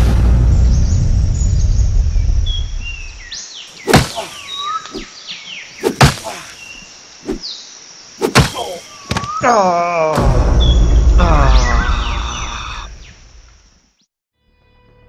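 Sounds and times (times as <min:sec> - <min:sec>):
birds chirping: 0:00.6 - 0:09.7, 0:10.5 - 0:13.4
kicks thudding on tree trunk: 0:03.9 - 0:04.4, 0:05.8 - 0:06.6, 0:08.2 - 0:09.4.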